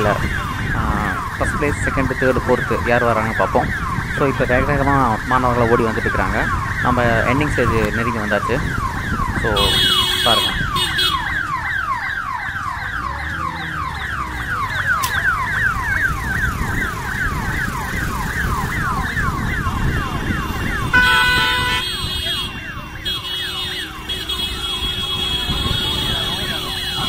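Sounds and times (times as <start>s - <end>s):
electronic siren sweeps: 0.0s - 27.0s
motorcycle engines running: 0.0s - 27.0s
vehicle horn blaring: 9.6s - 11.3s, 20.8s - 27.0s.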